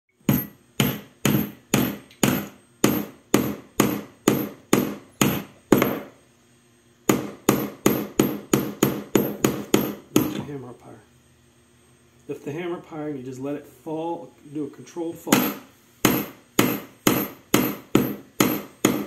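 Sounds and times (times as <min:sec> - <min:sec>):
hammer striking nail into wood: 0:00.3 - 0:06.1, 0:07.1 - 0:10.5, 0:15.3 - 0:19.0.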